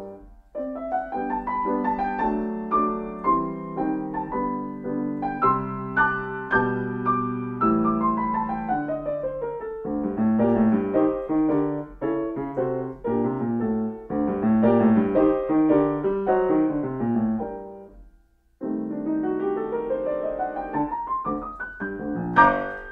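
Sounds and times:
grand piano playing: 0:00.0 - 0:18.0, 0:18.6 - 0:22.9.

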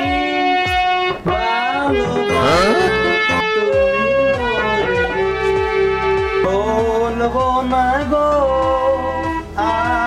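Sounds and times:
harmonium music: 0:02.0 - 0:06.4.

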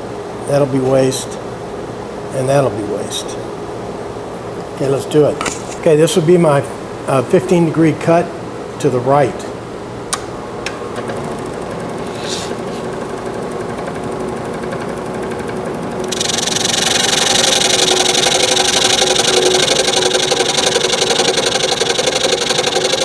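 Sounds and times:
scroll saw running: 0:14.6 - 0:23.0.

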